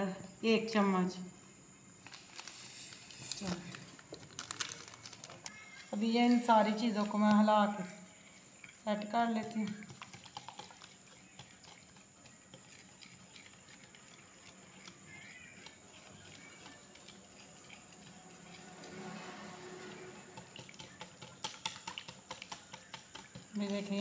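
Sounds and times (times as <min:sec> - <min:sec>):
batter sloshing: 0:02.1 - 0:24.0
whisk clicking against bowl: 0:09.5 - 0:18.6, 0:20.3 - 0:24.0.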